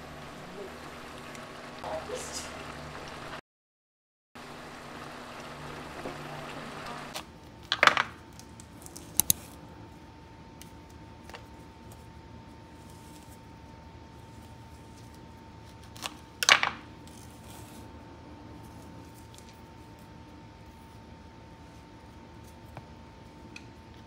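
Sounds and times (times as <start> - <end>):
stew bubbling in a frying pan: 0.0 - 3.4, 4.4 - 7.2
banana being peeled: 8.2 - 9.8, 10.6 - 24.0.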